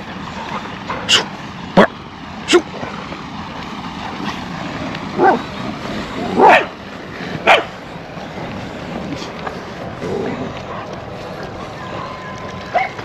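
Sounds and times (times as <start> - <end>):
dogs barking: 5.1 - 5.5, 6.2 - 6.8, 7.4 - 7.8, 10.4 - 11.0, 12.7 - 13.0.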